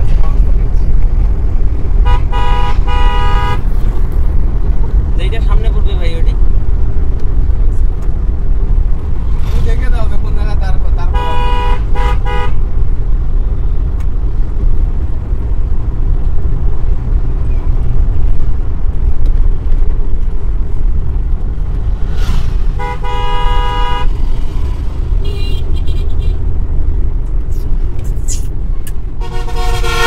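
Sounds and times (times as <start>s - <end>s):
road and engine rumble: 0.0s - 30.0s
car horn: 2.0s - 3.7s, 11.0s - 12.7s, 22.7s - 24.2s, 25.2s - 26.4s, 29.2s - 30.0s.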